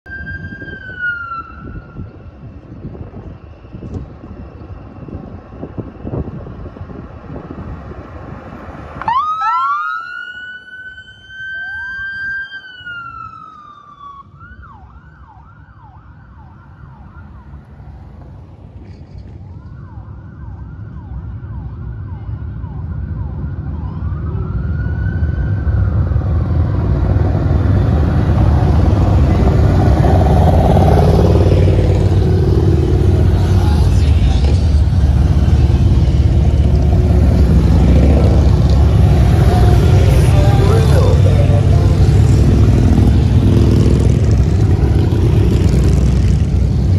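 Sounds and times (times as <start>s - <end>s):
emergency siren wailing and yelping: 0.1s - 2.5s, 9.0s - 18.0s, 19.4s - 27.2s
motorcycle engines rumbling: 16.2s - 46.9s.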